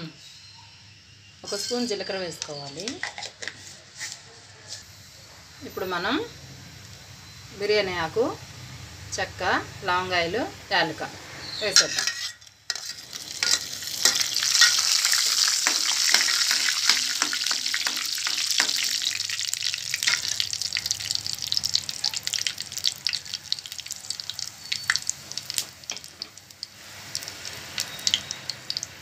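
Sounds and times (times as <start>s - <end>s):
spices sizzling in hot oil: 11.6s - 29.0s.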